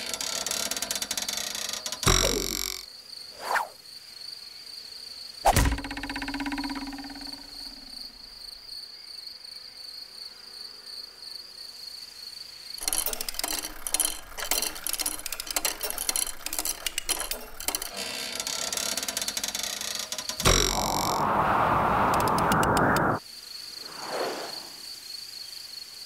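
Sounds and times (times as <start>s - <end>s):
rapid dry insect clicking: 0.0s - 2.8s, 12.8s - 21.2s
high-pitched insect whine: 0.0s - 26.0s.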